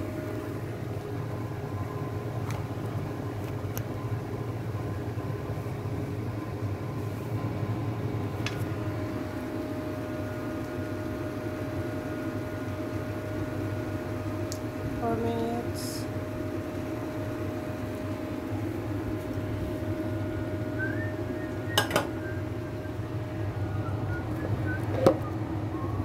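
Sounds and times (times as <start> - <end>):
low machine hum: 0.0 - 26.0
faint high whine: 15.0 - 26.0.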